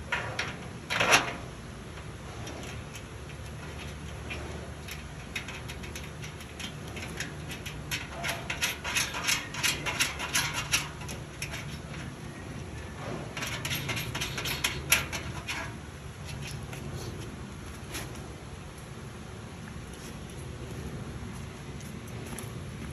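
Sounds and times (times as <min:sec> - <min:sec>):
steady low hum: 0:00.0 - 0:22.9
metal parts clicking and tapping: 0:02.0 - 0:12.7, 0:13.3 - 0:16.7.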